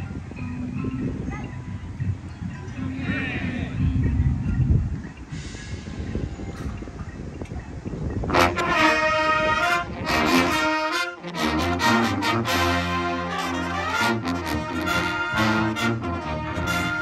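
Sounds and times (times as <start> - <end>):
marching band playing: 8.3 - 17.0.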